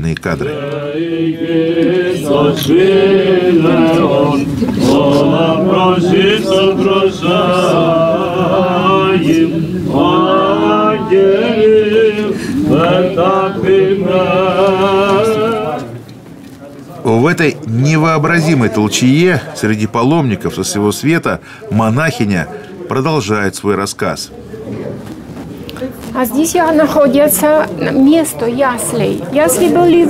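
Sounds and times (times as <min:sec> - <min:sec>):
voices singing a slow hymn: 0:00.4 - 0:16.3.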